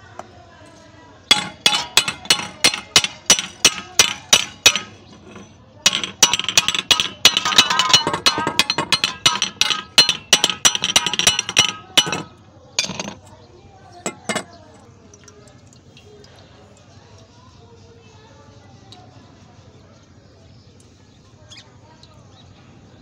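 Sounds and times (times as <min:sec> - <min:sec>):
hammer striking metal pipe: 0:01.3 - 0:13.3, 0:14.1 - 0:14.5.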